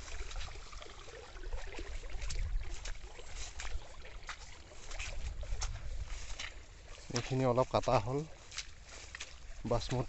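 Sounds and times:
rice plants rustling: 1.6 - 10.0
low wind rumble on microphone: 2.0 - 3.8.

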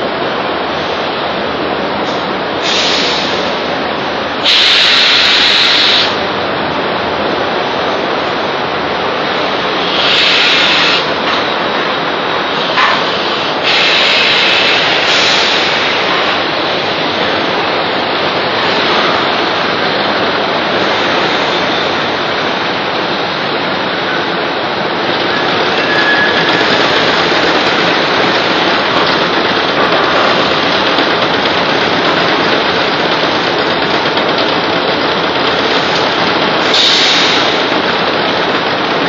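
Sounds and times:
loud machinery roar: 0.0 - 39.0
hissing bursts: 2.0 - 3.6, 4.4 - 6.2, 9.6 - 11.2, 12.5 - 17.3, 25.2 - 39.0.

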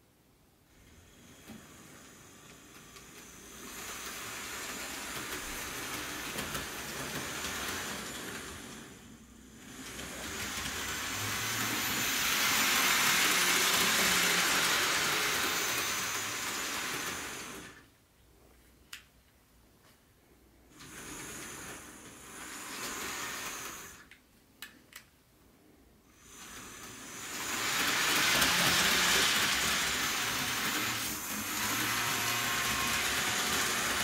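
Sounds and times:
model train motor whirring: 0.7 - 17.8, 20.7 - 24.1, 26.1 - 34.0.

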